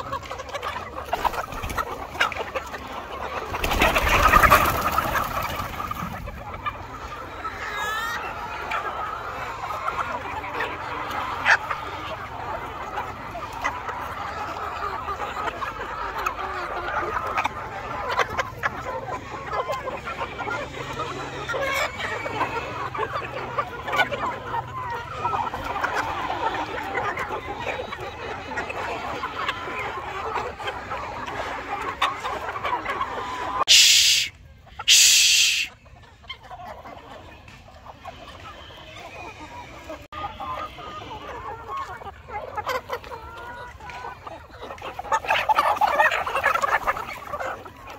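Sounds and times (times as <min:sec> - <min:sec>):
hens clucking: 0:00.0 - 0:47.9
loud hiss bursts: 0:33.7 - 0:34.3, 0:34.9 - 0:35.7
short sharp sounds: 0:33.7 - 0:34.3, 0:34.9 - 0:35.7.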